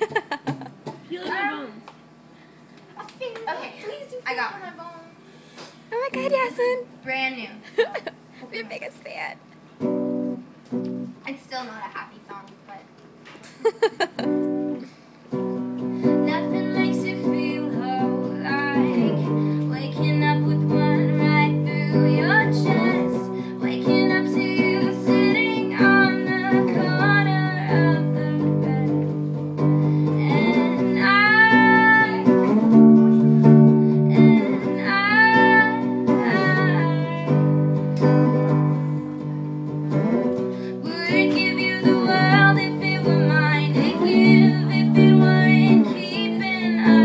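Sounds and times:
electric guitar strumming: 9.8s - 11.2s, 14.2s - 47.0s
woman singing: 16.1s - 29.2s, 30.0s - 32.5s, 33.9s - 37.4s, 40.7s - 47.0s.

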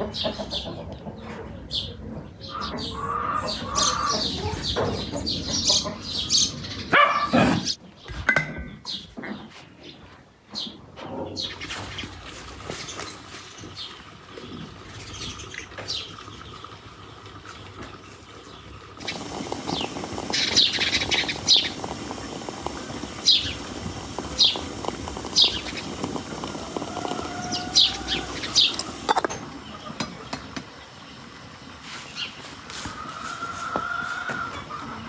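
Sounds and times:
small birds chirping: 0.1s - 31.4s
water pouring into teapot: 12.2s - 33.8s.

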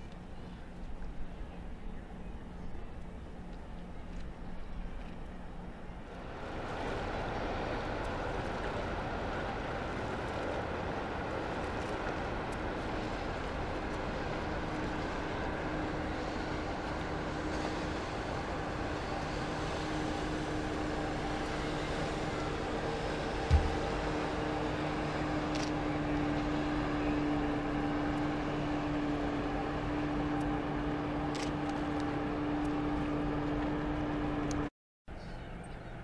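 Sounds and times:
ship engines droning: 0.0s - 36.0s.

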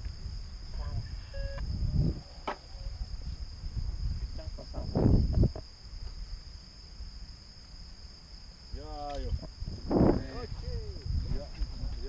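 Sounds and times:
wind buffeting on microphone: 0.0s - 6.4s, 8.8s - 12.0s
insects chirring: 0.0s - 12.0s.

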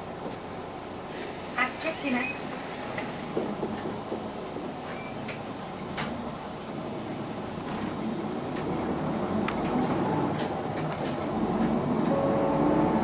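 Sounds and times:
bus diesel engine running: 0.0s - 13.0s
clicks and rattles in cabin: 3.4s - 6.2s, 9.5s - 12.2s.

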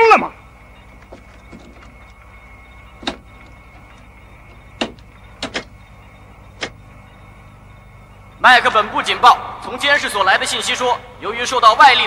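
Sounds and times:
falling electronic chirps: 0.0s - 12.0s
steady electronic hum: 0.0s - 12.0s.

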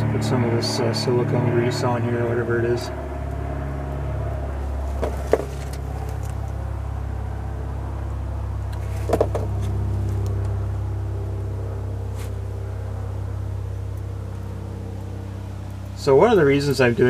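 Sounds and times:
motor low hum: 0.0s - 17.0s
light knocks: 5.0s - 6.3s.

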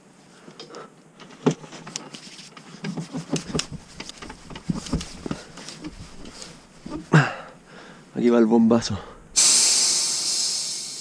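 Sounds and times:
floor pump strokes and clicks: 0.5s - 7.1s.

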